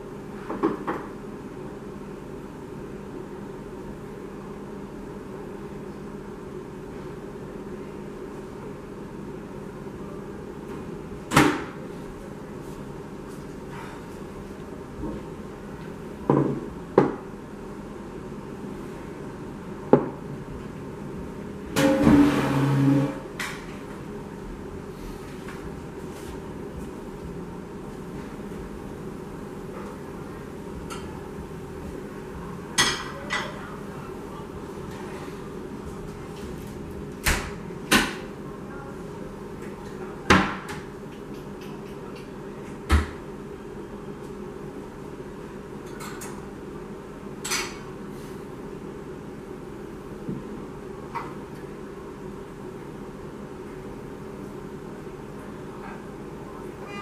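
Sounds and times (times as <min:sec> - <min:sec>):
metal chair scraping floor: 0:21.8 - 0:23.3.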